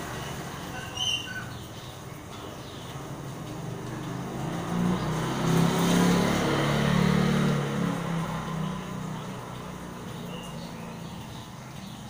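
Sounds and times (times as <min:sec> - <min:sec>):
rain falling: 0:00.0 - 0:12.0
motorcycle engine approaching: 0:02.6 - 0:12.0.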